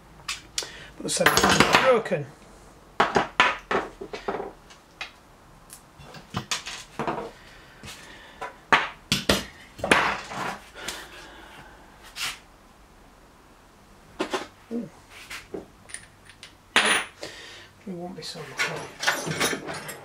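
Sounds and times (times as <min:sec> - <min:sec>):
metal hand tools clinking: 0:18.6 - 0:20.0.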